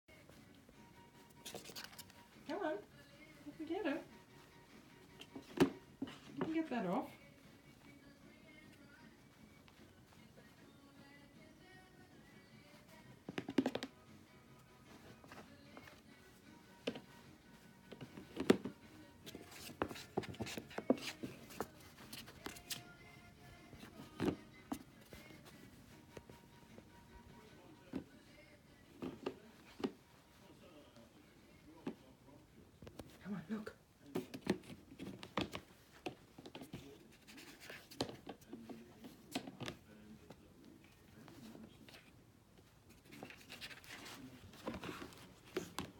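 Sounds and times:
soft background music: 0.1 - 45.9.

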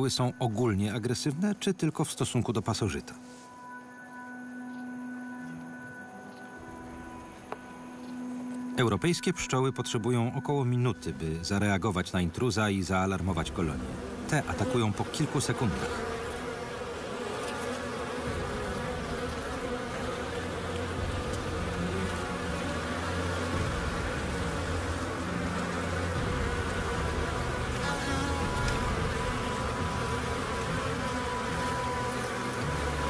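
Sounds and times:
swarm of bees buzzing: 10.6 - 33.0.

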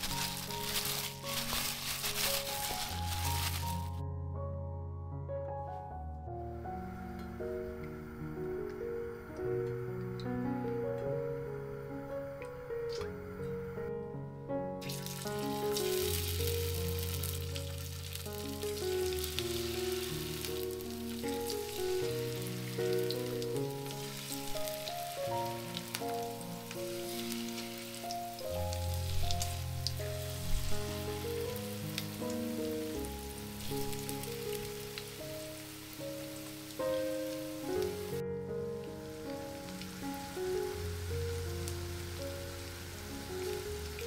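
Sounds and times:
battered slices sizzling in oil: 0.0 - 4.0, 14.8 - 44.0.

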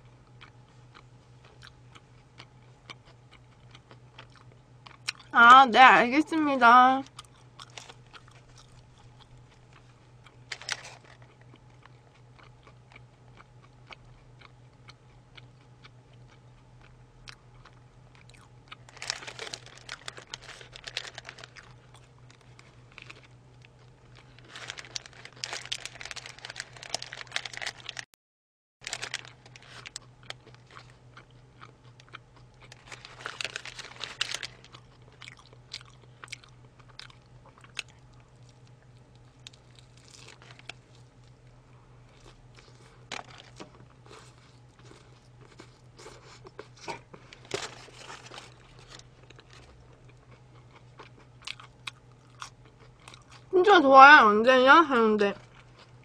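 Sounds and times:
chewing and crunching: 0.0 - 5.4, 7.0 - 28.1, 28.8 - 53.6, 55.3 - 56.0.

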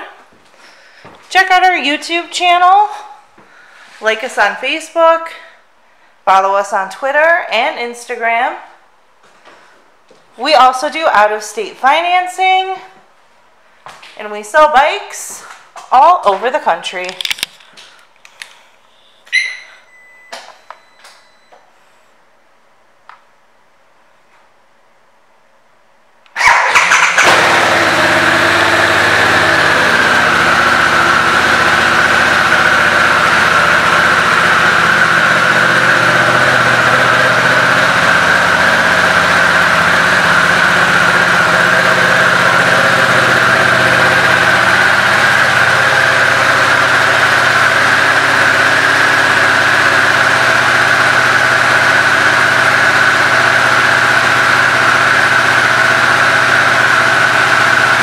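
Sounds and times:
motorcycle engine starting and idling: 26.3 - 58.0.

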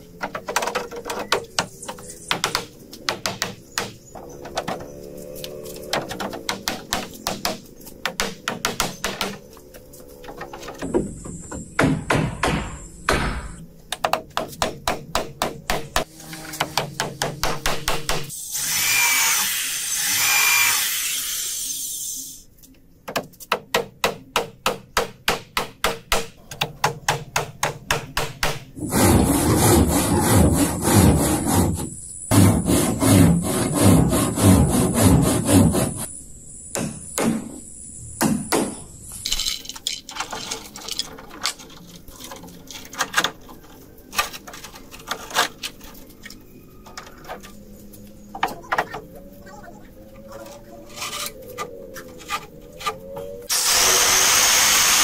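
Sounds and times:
power tool cutting wood: 18.5 - 21.9, 53.5 - 55.0
sharp strokes on wood: 28.2 - 36.1.

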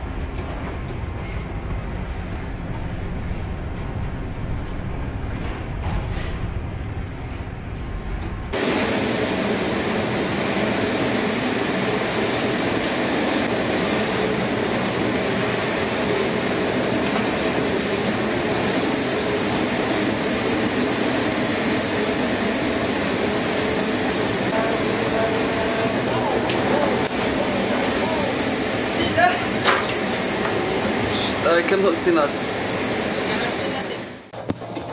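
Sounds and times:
storm wind: 0.0 - 34.2
heavy sea rushing: 8.6 - 34.3.

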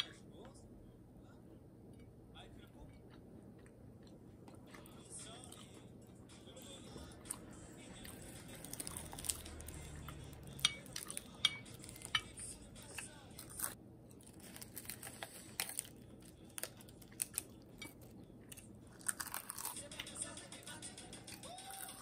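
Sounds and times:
cutlery clinking against dishes: 10.5 - 12.4.

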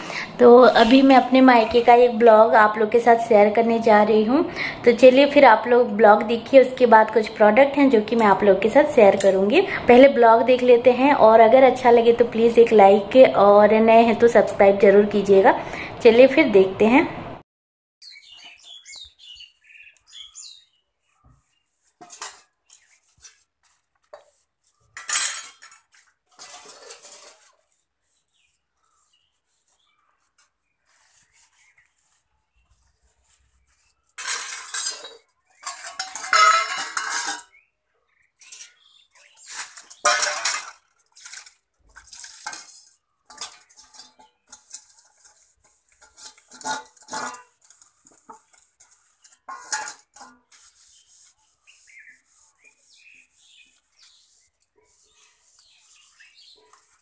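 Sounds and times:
metal dishes clinking and scraping: 22.0 - 22.5, 24.9 - 27.6, 34.2 - 37.6, 38.4 - 50.7.

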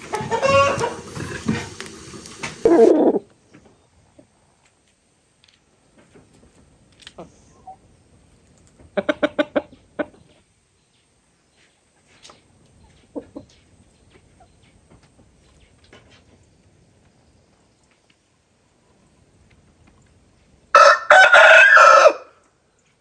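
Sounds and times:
rooster clucking: 0.0 - 1.7, 2.6 - 3.3, 8.9 - 10.4, 12.9 - 14.5.

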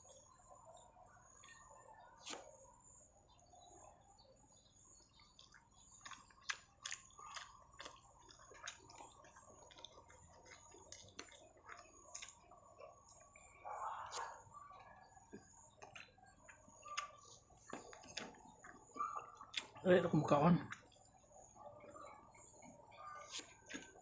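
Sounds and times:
mouth smacks and chewing: 4.6 - 19.8, 20.7 - 24.0.

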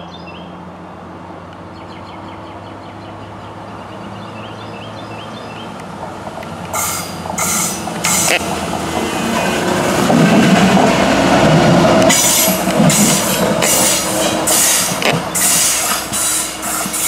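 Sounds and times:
diesel railcar engine hum: 0.0 - 17.0
bird chirping: 1.7 - 5.8
loud hissing bursts: 12.1 - 17.0.

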